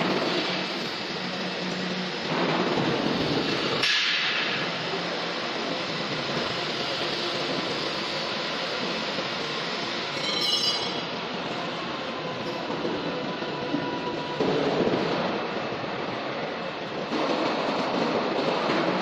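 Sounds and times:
high ringing: 10.1s - 11.2s.

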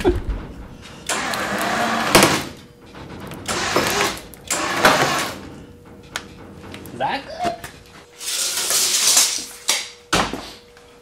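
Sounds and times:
electric winch running under load: 0.9s - 5.7s.

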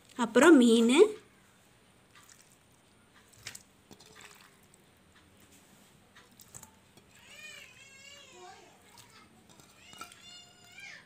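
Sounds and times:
wet squishing of fish: 2.1s - 4.8s, 6.2s - 7.6s, 8.8s - 11.0s
faint children's voices: 6.5s - 11.0s.

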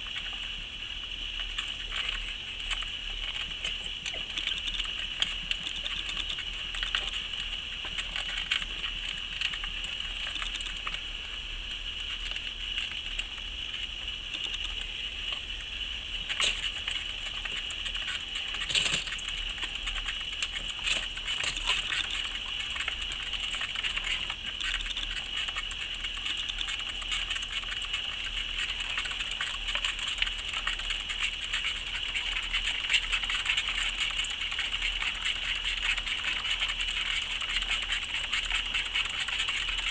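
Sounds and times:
exercise wheels spinning and rattling: 16.2s - 39.9s.

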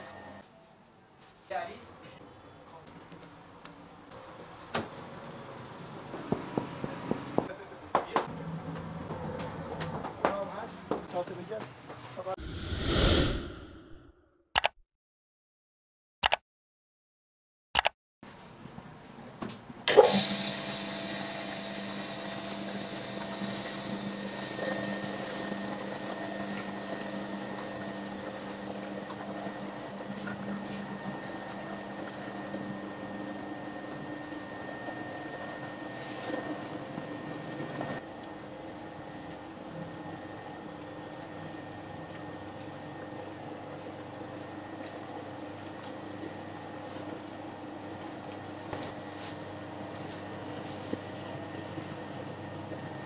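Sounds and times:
bakery machinery humming: 20.2s - 53.0s.

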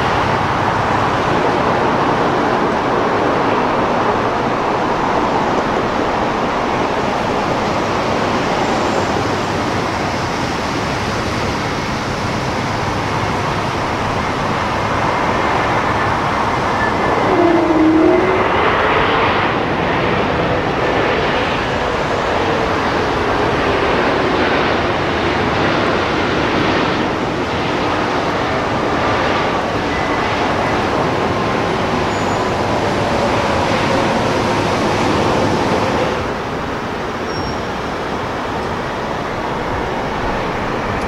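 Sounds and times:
jet engines running loud: 0.0s - 41.0s
whine sliding in pitch: 15.8s - 19.6s.

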